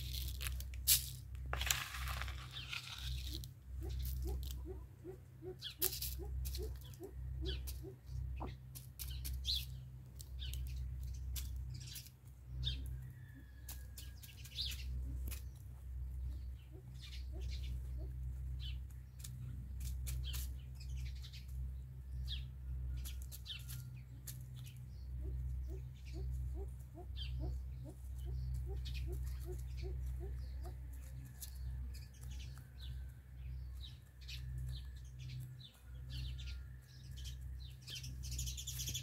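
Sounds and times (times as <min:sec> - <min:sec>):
chicken pecking the ground: 0:00.0 - 0:16.4, 0:17.3 - 0:21.7, 0:22.3 - 0:39.0
bird chirps: 0:02.5 - 0:09.8, 0:24.6 - 0:39.0.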